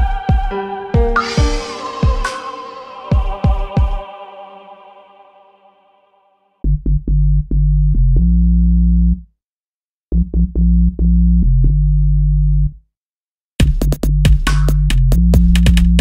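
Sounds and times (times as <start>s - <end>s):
electronic music: 0.0s - 6.2s.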